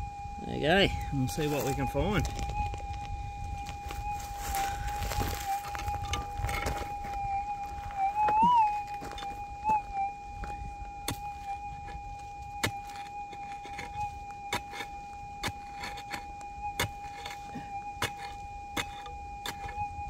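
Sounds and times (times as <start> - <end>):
metal detector high-pitched tone: 0.0 - 20.0
pick striking stony soil: 12.6 - 19.8.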